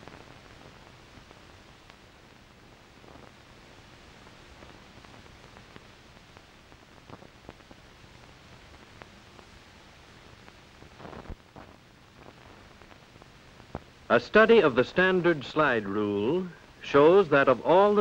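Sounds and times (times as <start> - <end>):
faint clicks and crackles: 0.0 - 14.1
film soundtrack surface hiss: 0.0 - 18.0.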